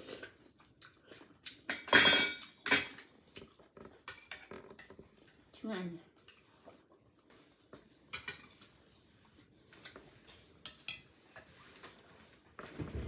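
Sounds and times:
spoon and shells clinking on dishes: 1.7 - 3.1.

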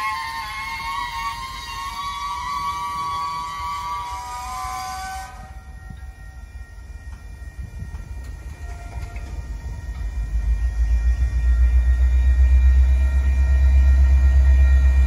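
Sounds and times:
locomotive horn chord: 0.0 - 6.5, 8.3 - 10.6.

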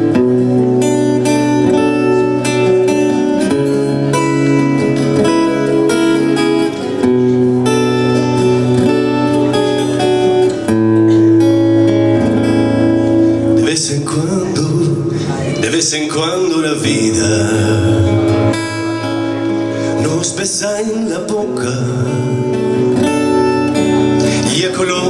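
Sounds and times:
acoustic guitar strumming: 0.0 - 25.0
man's voice: 13.4 - 23.1, 23.8 - 25.0.

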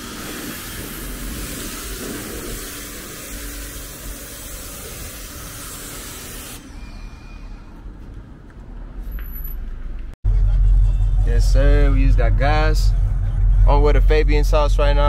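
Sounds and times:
spraying hiss: 0.0 - 6.8.

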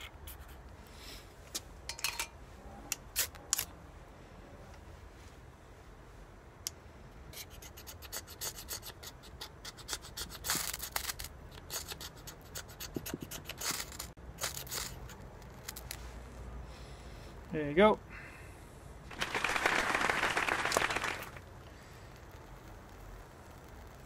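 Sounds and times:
knife scraping ferrocerium rod: 7.3 - 16.0.

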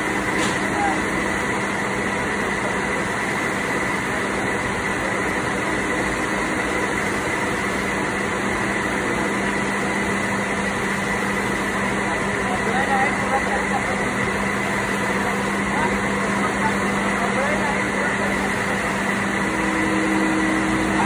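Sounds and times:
machinery humming: 0.0 - 21.0
high-pitched whine: 15.7 - 21.0.

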